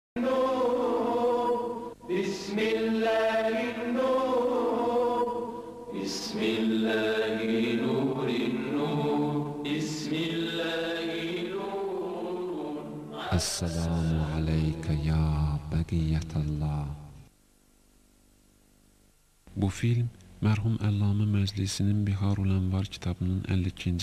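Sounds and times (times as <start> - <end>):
unaccompanied vocal chant: 0.2 - 16.8.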